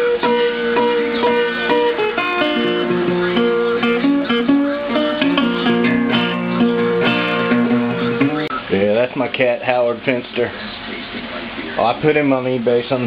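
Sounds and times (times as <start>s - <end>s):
acoustic guitar playing: 0.0s - 8.6s.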